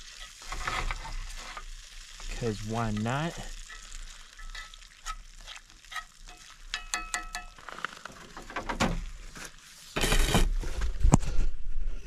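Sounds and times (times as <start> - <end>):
utensil scraping a pan: 0.0 - 8.4
green beans sizzling in a skillet: 0.0 - 10.9
utensil clinking against a pan: 2.9 - 7.8.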